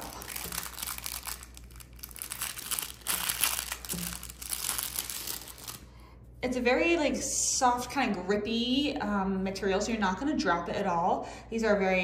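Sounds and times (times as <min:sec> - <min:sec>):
plastic packaging crinkling: 0:00.0 - 0:05.9.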